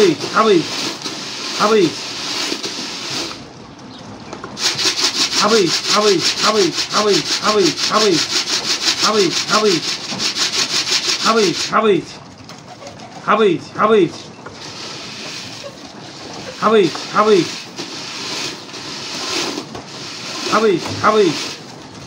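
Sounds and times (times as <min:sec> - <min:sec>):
scratchy pulsed rasping: 0:04.6 - 0:11.8
pigeons cooing: 0:12.2 - 0:13.3.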